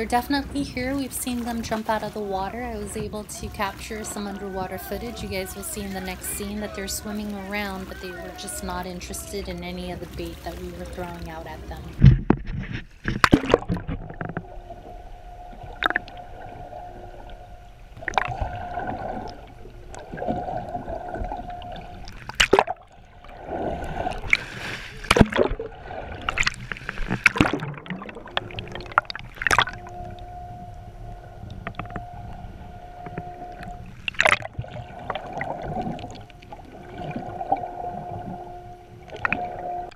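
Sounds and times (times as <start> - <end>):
boat engine whine underwater: 0.0 - 39.9
water splashes: 0.0 - 39.9
bubbly gurgling: 18.0 - 30.7, 33.2 - 39.9.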